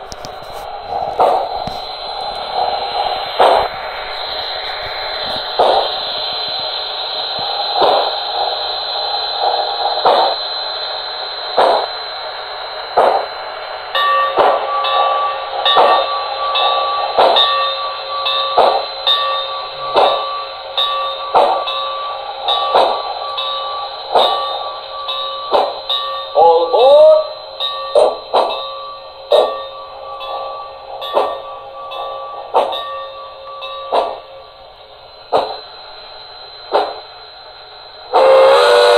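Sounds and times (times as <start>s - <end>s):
locomotive bell ringing: 12.6s - 38.6s
steam exhaust chuffs from speaker: 38.1s - 38.9s.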